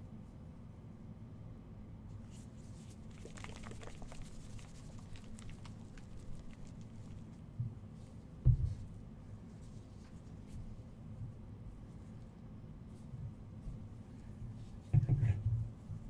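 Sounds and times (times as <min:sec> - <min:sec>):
soft low thump: 0:08.4 - 0:08.9.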